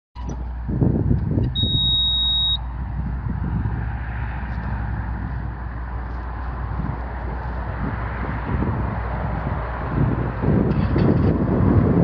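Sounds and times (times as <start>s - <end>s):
diesel engine running: 0.2s - 12.0s
high-pitched electronic warning beep: 1.4s - 2.6s.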